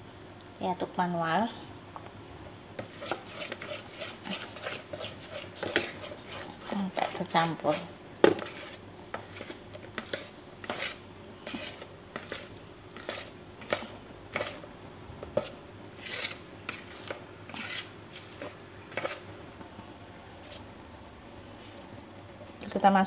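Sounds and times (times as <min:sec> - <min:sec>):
spatula scraping plastic bowl: 0:02.8 - 0:14.7, 0:15.3 - 0:19.3.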